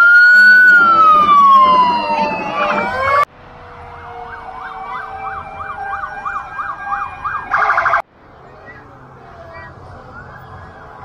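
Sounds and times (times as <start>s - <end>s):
loud buzzy siren blast: 0.0s - 8.0s
vehicle siren yelping: 0.0s - 8.0s, 9.8s - 11.0s.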